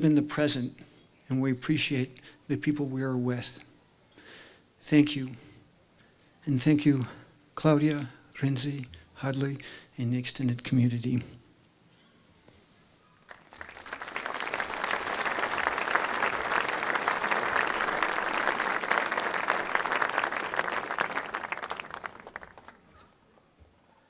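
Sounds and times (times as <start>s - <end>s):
audience applauding: 13.3s - 22.9s.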